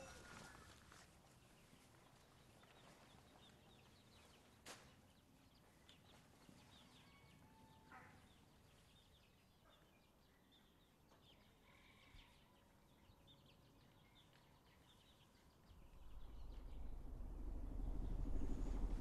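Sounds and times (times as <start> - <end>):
faint poultry chirps: 6.7 - 13.2.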